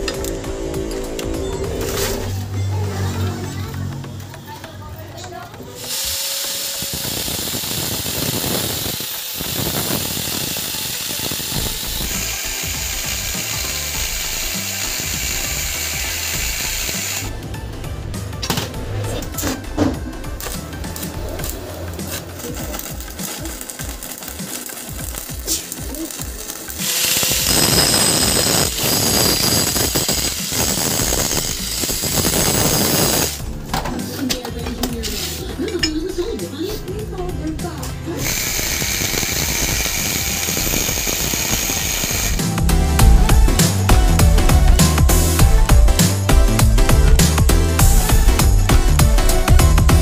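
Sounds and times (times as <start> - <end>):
angle grinder cutting steel: 5.8 - 17.3, 20.4 - 33.4, 38.2 - 50.0.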